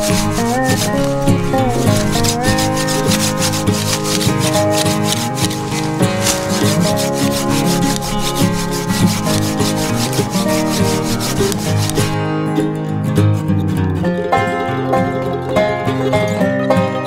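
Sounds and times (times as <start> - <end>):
saw cutting tree trunk: 0.0 - 12.2
background music: 0.0 - 17.0.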